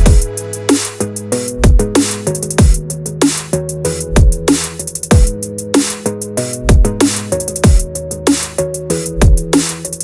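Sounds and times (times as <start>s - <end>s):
held synth chords: 0.0s - 2.9s.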